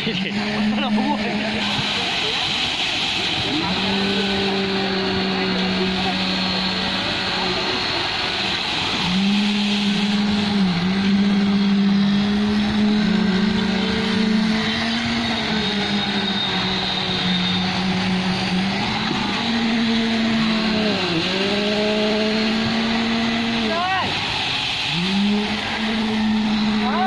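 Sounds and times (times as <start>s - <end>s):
diesel engine at high revs: 0.0s - 27.0s.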